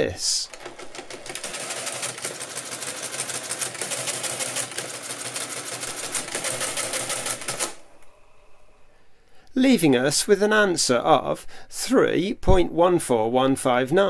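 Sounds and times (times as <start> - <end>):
mechanical calculator clattering: 0.3 - 7.8.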